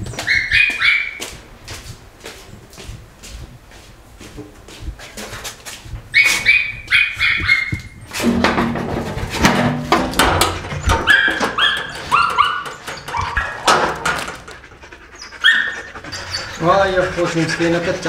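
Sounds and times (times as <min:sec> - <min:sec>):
dogs whining and yelping: 0:00.0 - 0:01.2, 0:06.1 - 0:08.1, 0:10.6 - 0:18.0
footsteps: 0:00.0 - 0:15.1
dogs barking: 0:00.2 - 0:01.2, 0:06.2 - 0:07.9, 0:10.2 - 0:18.0
metal door clatter: 0:08.1 - 0:14.6.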